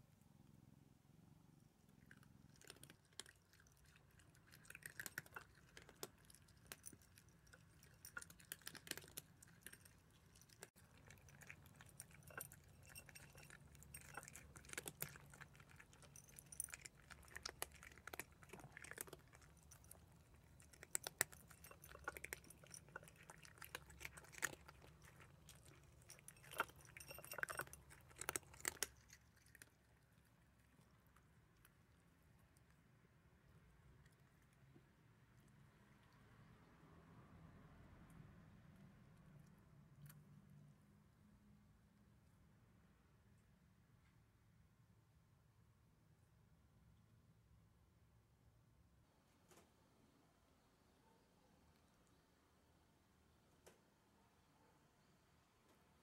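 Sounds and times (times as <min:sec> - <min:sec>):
cats crunching dry kibble: 0:01.9 - 0:32.6.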